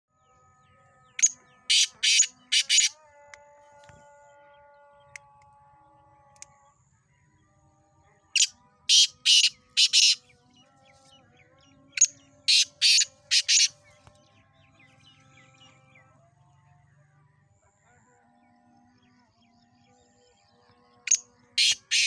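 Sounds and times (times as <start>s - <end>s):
francolin calling: 1.2s - 2.9s, 8.4s - 10.2s, 12.0s - 13.8s, 21.1s - 22.0s.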